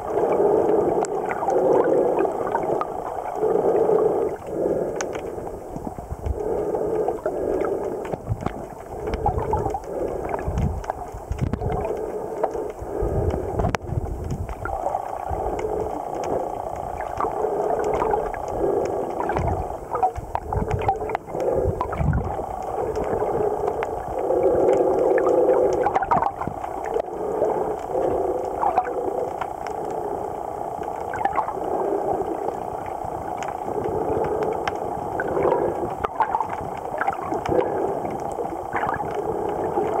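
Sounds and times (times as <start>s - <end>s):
faint clicks: 0.0s - 40.0s
gurgling underwater noise: 0.0s - 40.0s
low underwater rumbles: 0.0s - 40.0s.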